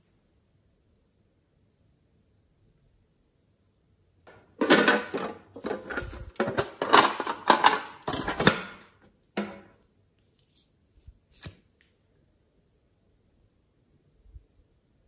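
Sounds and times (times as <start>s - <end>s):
plastic container clacking: 4.6s - 8.8s.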